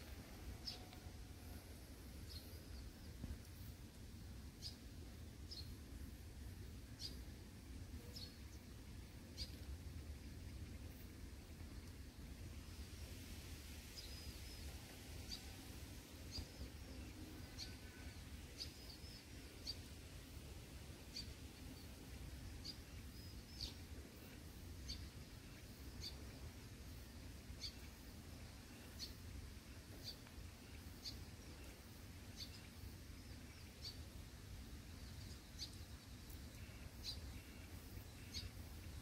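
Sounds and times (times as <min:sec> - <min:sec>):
faint low outdoor rumble: 0:00.0 - 0:39.0
small bird chirping: 0:06.9 - 0:07.3, 0:09.3 - 0:09.7, 0:21.0 - 0:26.5, 0:27.5 - 0:34.2, 0:34.8 - 0:39.0.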